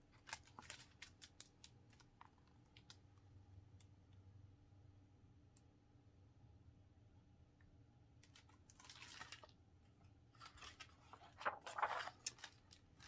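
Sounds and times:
faint low hum: 0:00.0 - 0:13.0
paper page rustling: 0:08.4 - 0:09.6, 0:10.4 - 0:13.0.

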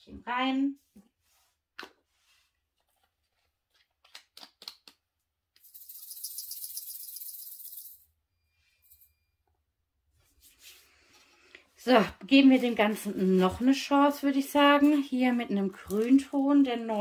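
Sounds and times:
beads rattling in plastic container: 0:05.6 - 0:08.0.

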